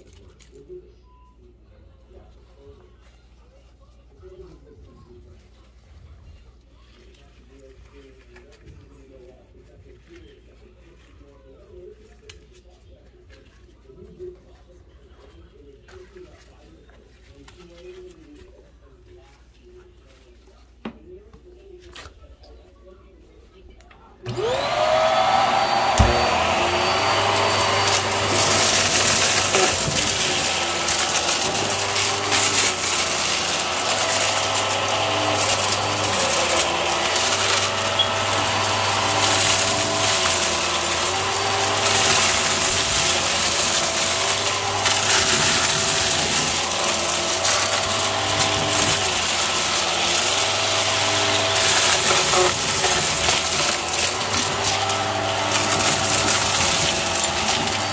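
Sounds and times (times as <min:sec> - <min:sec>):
debris rattling through vacuum nozzle: 0:24.3 - 0:57.9
stick vacuum running: 0:24.3 - 0:57.9.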